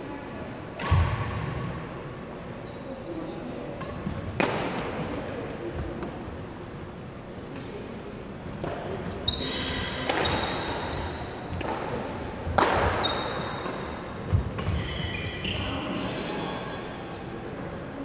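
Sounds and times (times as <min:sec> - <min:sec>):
shoes squeaking on wooden court: 0:03.8 - 0:04.5, 0:09.2 - 0:17.2
racket striking shuttlecock: 0:11.5 - 0:14.8.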